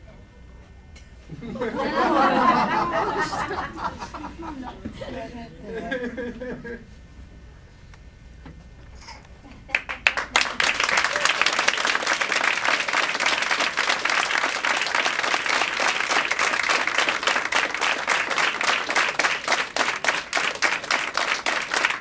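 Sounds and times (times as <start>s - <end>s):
audience clapping: 9.7s - 22.0s.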